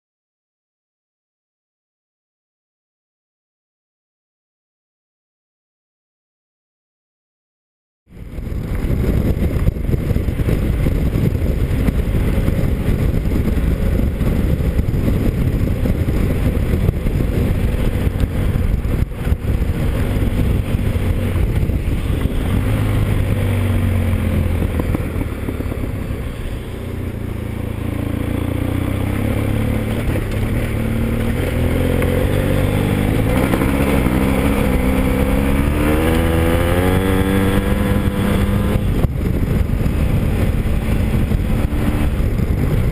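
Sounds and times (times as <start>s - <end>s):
motorcycle engine accelerating: 8.1s - 42.9s
wind and road noise: 8.1s - 42.9s.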